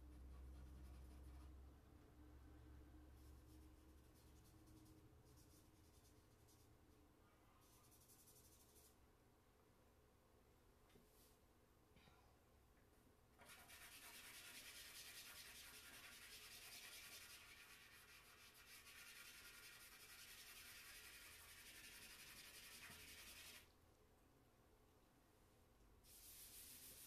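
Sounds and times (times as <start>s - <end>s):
charcoal rubbing on paper: 0.1s - 1.6s, 13.4s - 23.7s, 26.1s - 27.0s.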